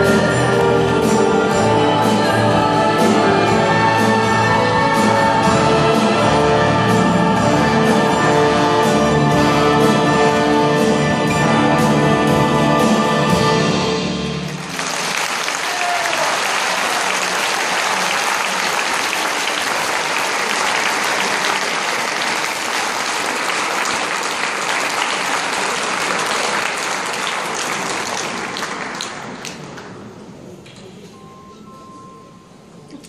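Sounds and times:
large audience applauding: 14.5s - 30.0s.

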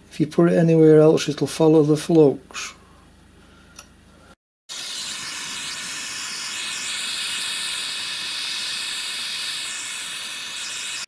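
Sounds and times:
gas torch hissing: 4.7s - 11.0s.

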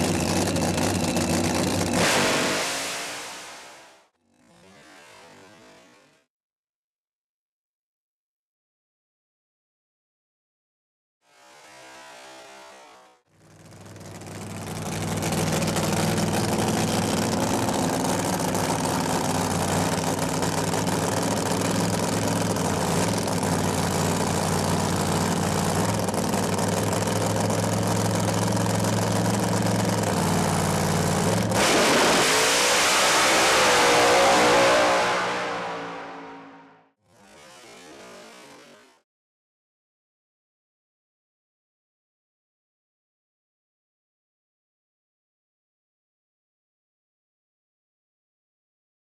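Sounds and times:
drag car engine revving: 0.0s - 6.0s, 13.4s - 38.8s.

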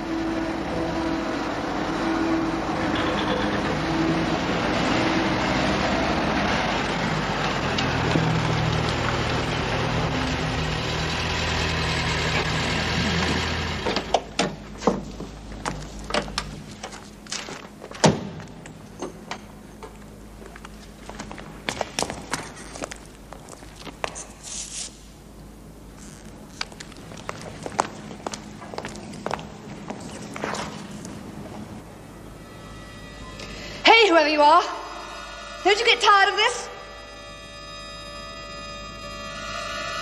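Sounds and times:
high heels clicking on hard ground: 19.9s - 24.4s, 26.5s - 31.6s.

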